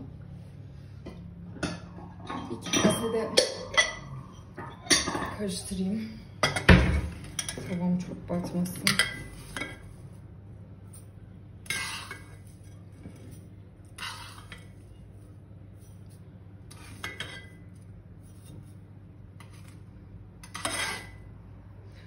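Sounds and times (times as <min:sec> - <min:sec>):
steady low hum: 0:00.0 - 0:22.0
metal spoon scraping ceramic bowl: 0:11.6 - 0:15.2, 0:20.4 - 0:21.3.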